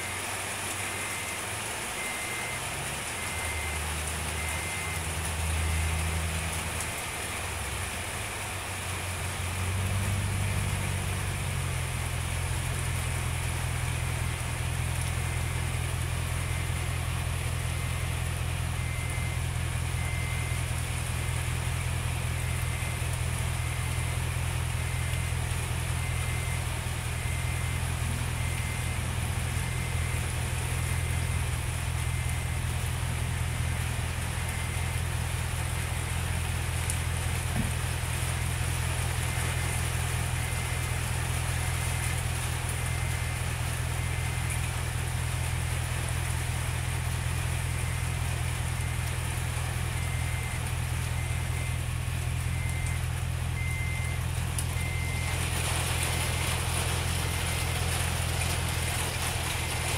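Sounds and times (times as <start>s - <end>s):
car engine idling: 0.0s - 59.9s
faint high beep: 2.0s - 2.6s, 3.2s - 5.0s, 18.8s - 20.7s, 26.0s - 26.6s, 27.2s - 29.0s, 51.2s - 51.8s, 52.5s - 53.0s, 53.6s - 54.2s, 54.8s - 55.3s.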